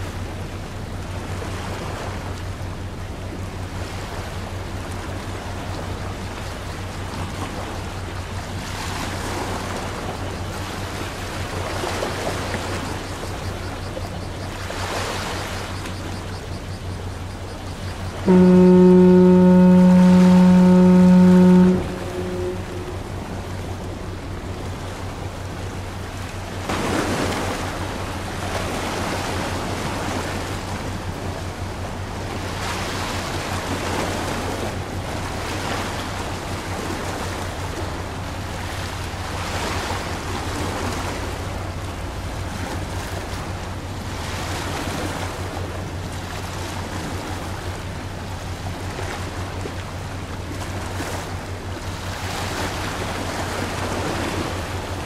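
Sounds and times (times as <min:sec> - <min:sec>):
water washing in waves: 0:00.0 - 0:55.0
steady low hum: 0:16.3 - 0:32.9.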